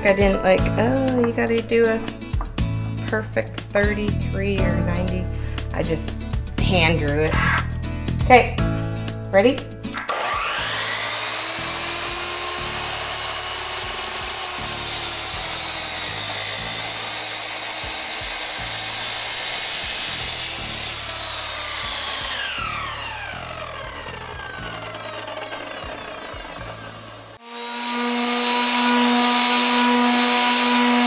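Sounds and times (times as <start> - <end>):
miter saw cutting wood: 9.9 - 31.0.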